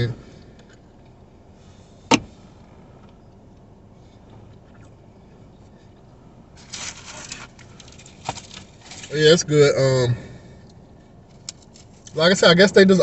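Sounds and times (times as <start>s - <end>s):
rustling in a car seat: 6.6s - 9.2s.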